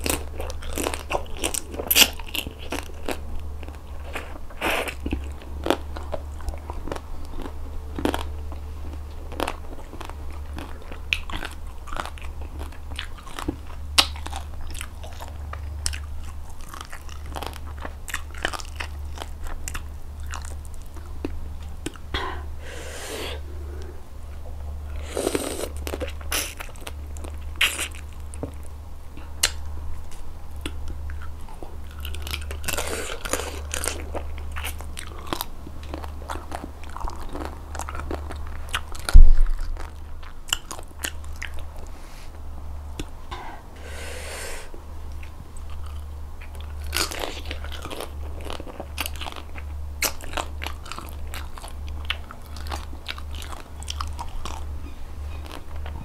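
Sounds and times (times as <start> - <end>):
chewing: 0.0 - 56.0
low steady hum: 0.0 - 56.0
wet sucking: 22.2 - 23.9, 43.3 - 44.7.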